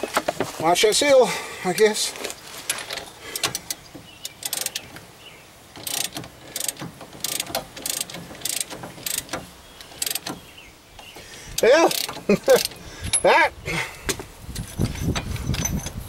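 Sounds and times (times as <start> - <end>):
ratchet wrench clicking: 2.7 - 5.0, 5.8 - 10.4, 11.6 - 13.2.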